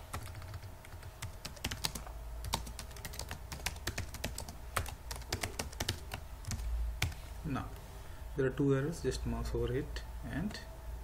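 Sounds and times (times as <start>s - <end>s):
computer keyboard typing: 0.1s - 7.2s.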